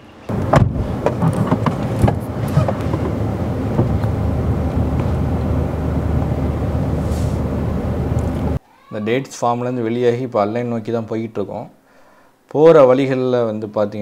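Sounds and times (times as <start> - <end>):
tyre noise on dirt: 0.3 - 7.7
car engine hum: 0.3 - 8.6.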